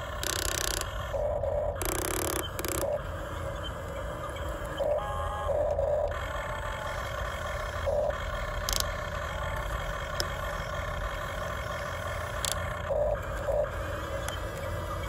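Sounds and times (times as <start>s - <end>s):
electric motors whirring: 0.0s - 1.2s, 1.8s - 3.1s, 7.8s - 15.0s.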